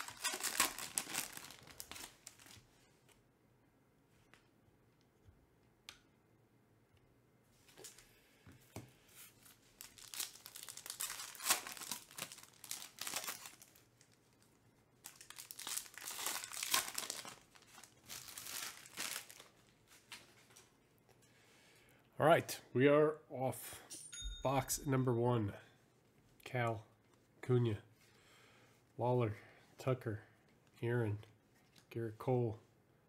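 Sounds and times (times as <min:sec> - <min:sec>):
foil wrapper tearing and crinkling: 0:00.0 - 0:02.6, 0:09.8 - 0:14.4, 0:15.0 - 0:20.1.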